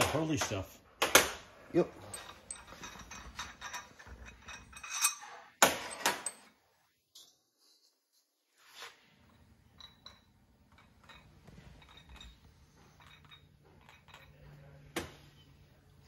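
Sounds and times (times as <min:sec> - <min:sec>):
metallic clinks of tools: 0:02.0 - 0:06.5, 0:09.7 - 0:14.8.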